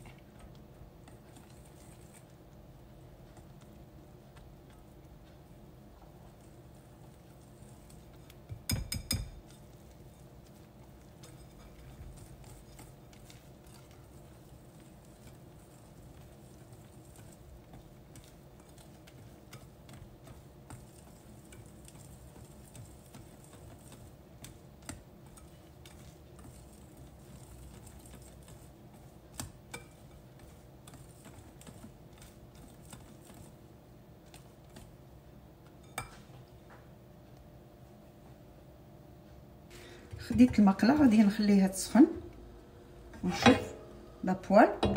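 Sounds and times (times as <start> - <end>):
whisk ticking against glass bowl: 7.3 - 33.5
whisk clinking on glass: 8.6 - 9.6.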